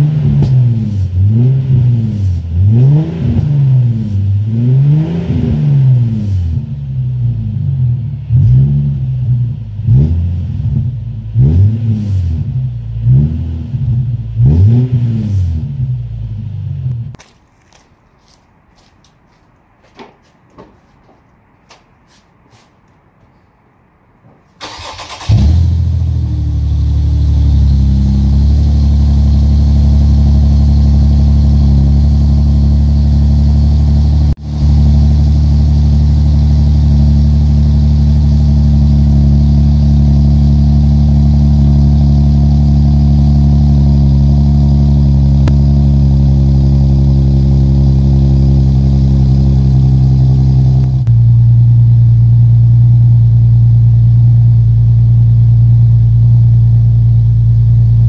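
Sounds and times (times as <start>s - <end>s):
car engine cranking and idling: 24.6s - 58.0s.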